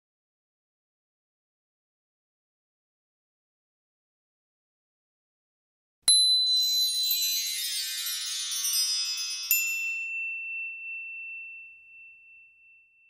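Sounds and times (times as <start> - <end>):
sparkly chime cascade: 6.1 - 12.8
bright bell ding: 6.1 - 13.0.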